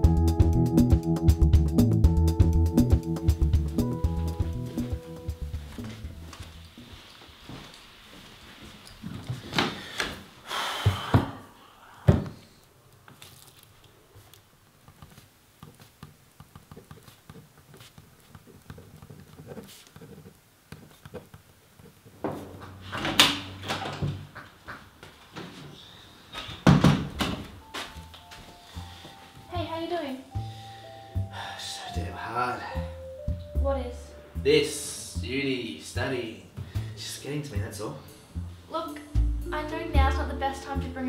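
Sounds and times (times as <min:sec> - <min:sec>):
wooden door opening: 0:22.2 - 0:24.4, 0:26.3 - 0:27.6.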